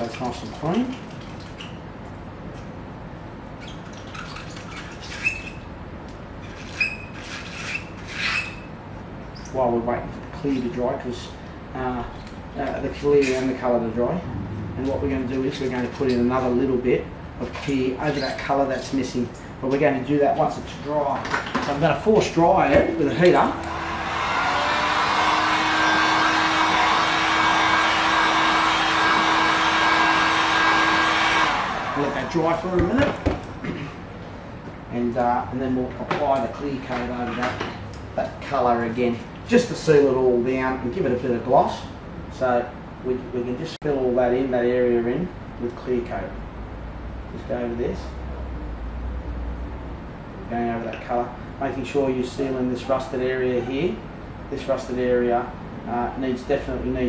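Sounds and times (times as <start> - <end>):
room hiss: 21.8 - 32.7
heat gun blowing air: 23.7 - 32.4.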